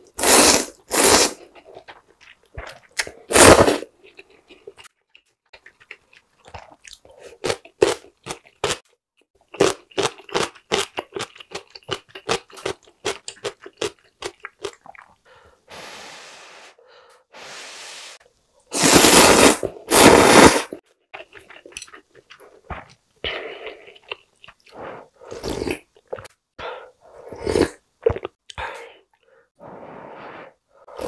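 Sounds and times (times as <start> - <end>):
slurping noodles: 0.1 - 1.6, 3.3 - 3.9, 17.4 - 20.8, 29.6 - 31.0.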